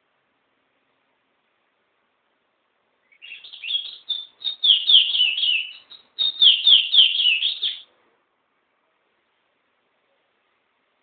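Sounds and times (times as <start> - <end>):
songbird singing: 3.0 - 7.9.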